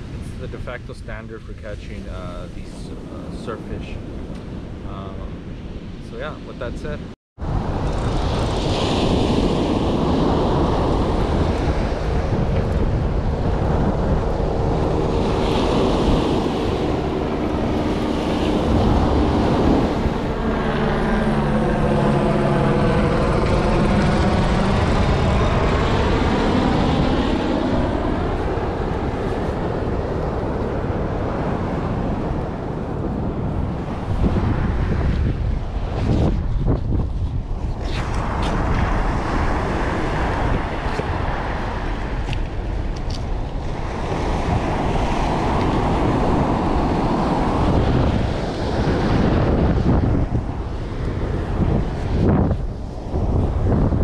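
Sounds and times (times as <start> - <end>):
airplane engine drone overhead: 0.0 - 54.0
surf washing in: 0.0 - 54.0
wind on microphone: 0.0 - 54.0.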